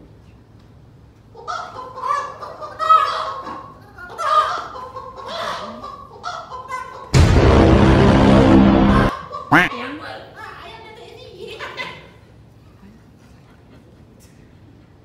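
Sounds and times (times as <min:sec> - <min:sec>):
harsh buzzing blast: 0:07.2 - 0:09.7.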